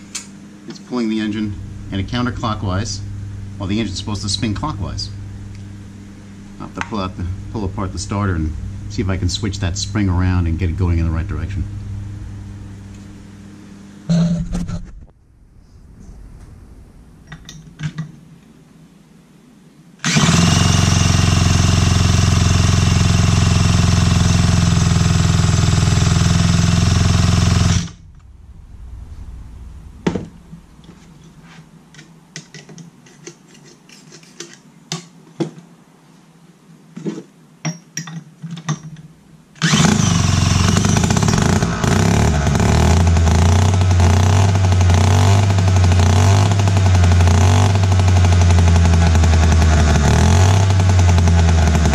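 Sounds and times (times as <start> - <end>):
chainsaw engine running: 1.3 - 5.8, 20.0 - 28.0, 39.6 - 51.9.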